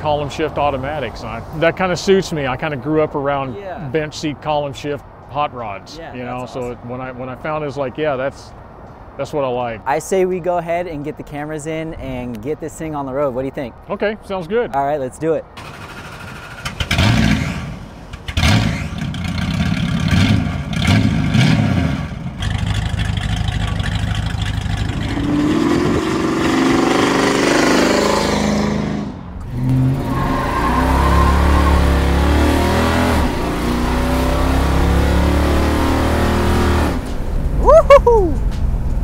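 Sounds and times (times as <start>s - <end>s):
car engine revving: 15.6s - 37.8s.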